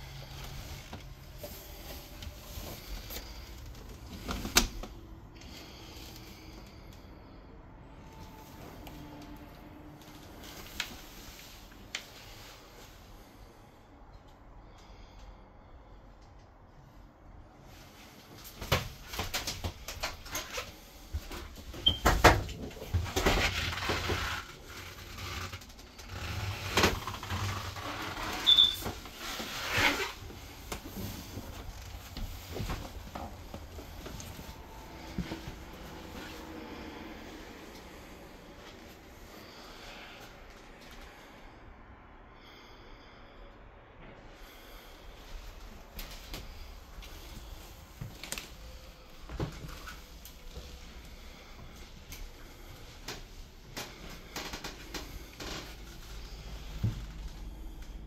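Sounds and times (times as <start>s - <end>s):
footsteps: 26.2s - 36.9s
high squeak: 28.4s - 28.9s.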